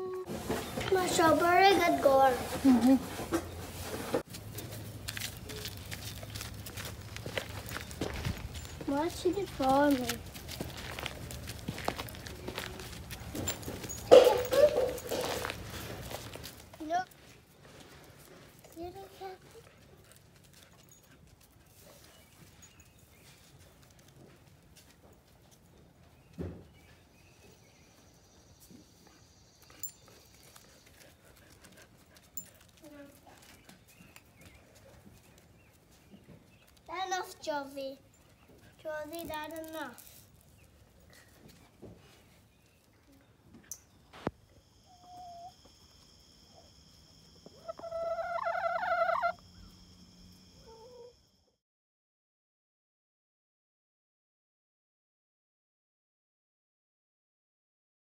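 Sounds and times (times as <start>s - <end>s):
hen pecking on concrete: 4.2s - 16.6s
chicken calling: 44.8s - 45.8s, 47.4s - 49.9s.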